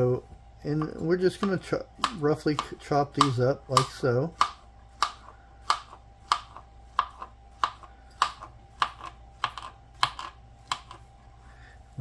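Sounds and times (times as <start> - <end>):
knife chopping on plastic board: 0.7 - 11.1.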